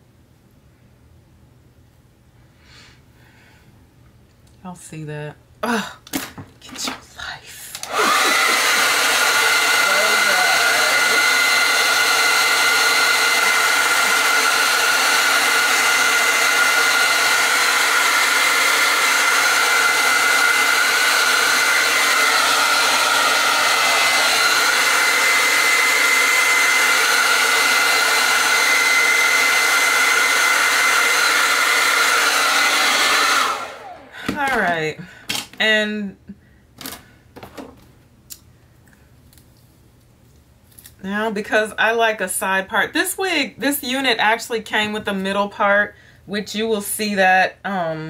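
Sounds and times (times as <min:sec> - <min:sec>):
hair dryer running: 0:07.7 - 0:35.6.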